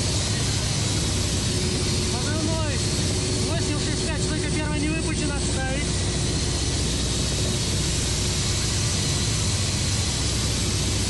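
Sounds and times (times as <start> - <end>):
constant low hum: 0.0 - 11.0
helicopter turbine engines and rotors: 0.0 - 11.0.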